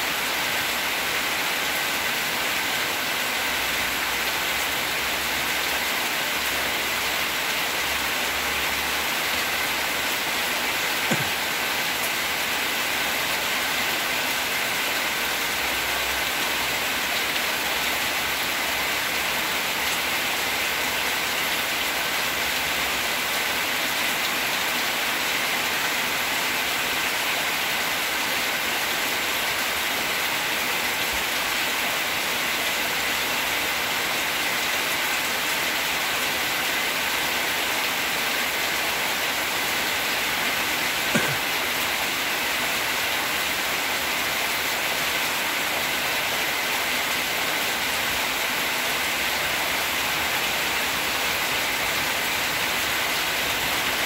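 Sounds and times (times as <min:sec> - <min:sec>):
brief knock: 0:11.1 - 0:11.4.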